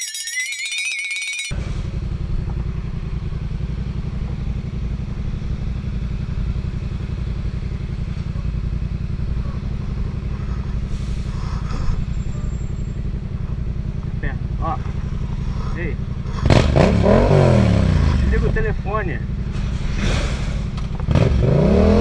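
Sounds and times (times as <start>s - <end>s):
motorcycle engine idling: 1.6s - 11.3s, 12.0s - 16.9s, 17.7s - 19.6s.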